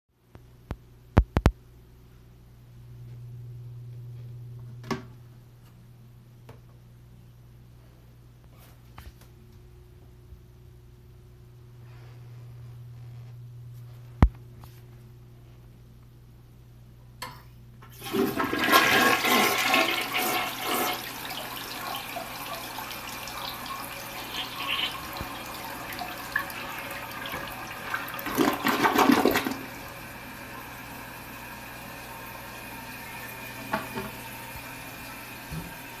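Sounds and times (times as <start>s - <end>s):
toilet flush click: 17.9s - 31.1s, 31.8s - 36.0s
water rushing into toilet bowl: 17.9s - 36.0s.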